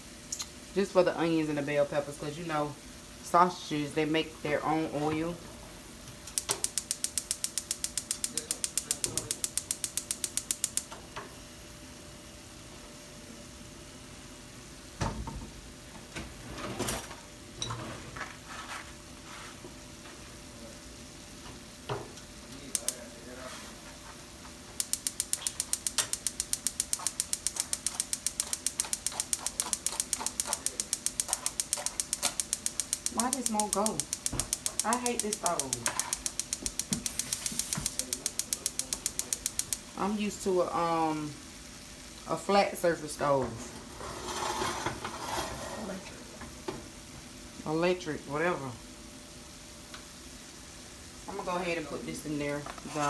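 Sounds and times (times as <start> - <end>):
stove spark igniter clicking: 6.0 - 11.0, 22.2 - 23.0, 24.8 - 40.2.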